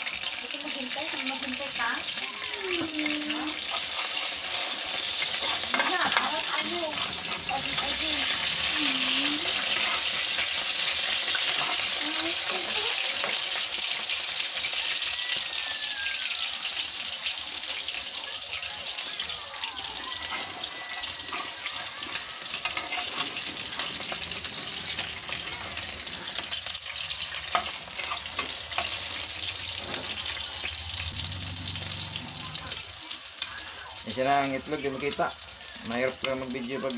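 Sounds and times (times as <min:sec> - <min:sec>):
eggs sizzling in hot oil: 0:00.0 - 0:36.9
metal spatula scraping a pan: 0:03.0 - 0:15.1, 0:20.2 - 0:32.8.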